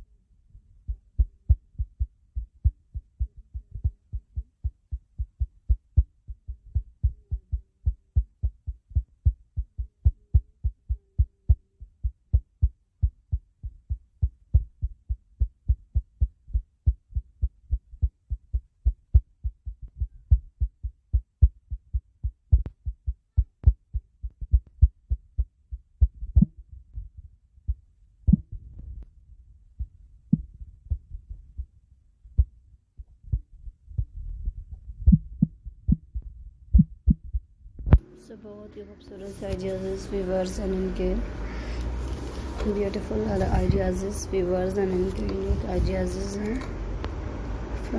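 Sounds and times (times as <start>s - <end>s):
low rumble: 0.6s - 47.9s
deep low thumping beat: 0.9s - 29.0s, 29.8s - 31.7s, 32.3s - 38.0s.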